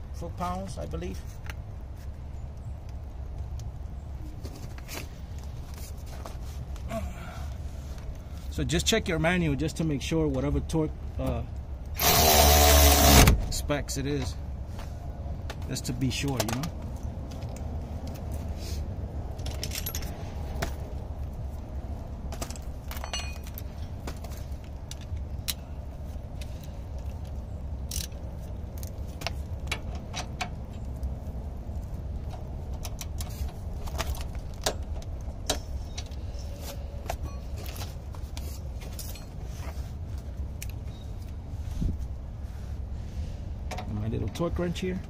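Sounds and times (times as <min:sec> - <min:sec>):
steady low rumble: 0:12.8 - 0:45.0.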